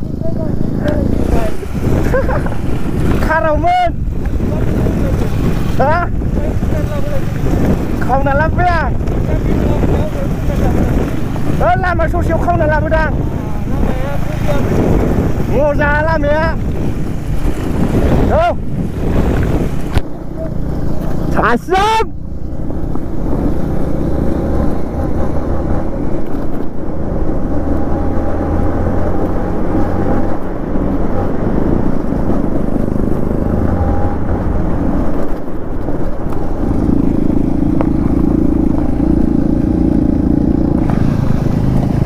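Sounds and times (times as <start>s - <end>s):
motorcycle engine running: 0.0s - 42.0s.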